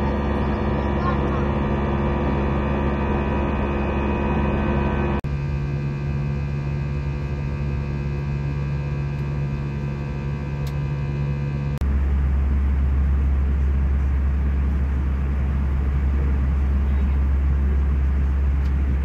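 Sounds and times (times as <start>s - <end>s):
aircraft cabin engine hum: 0.0s - 19.0s.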